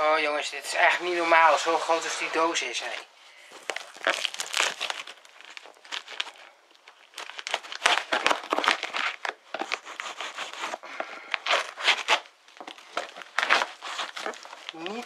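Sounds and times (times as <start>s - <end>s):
cardboard box tearing: 3.6s - 6.4s, 7.1s - 10.8s, 11.4s - 15.0s.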